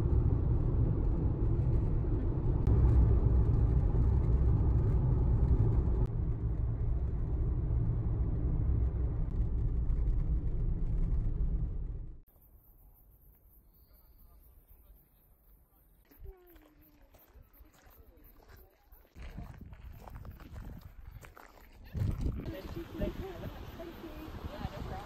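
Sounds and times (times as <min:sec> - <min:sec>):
car cabin road rumble: 0:00.0 - 0:12.3.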